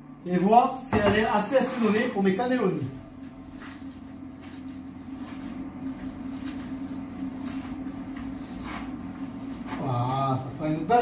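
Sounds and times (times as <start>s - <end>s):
hands kneading minced meat: 3.1s - 10.3s.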